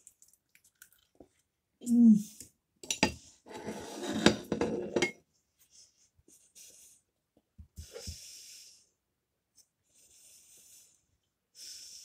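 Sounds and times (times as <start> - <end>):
knife and fork scraping a plate: 3.0 - 5.2
person breathing: 9.8 - 12.0.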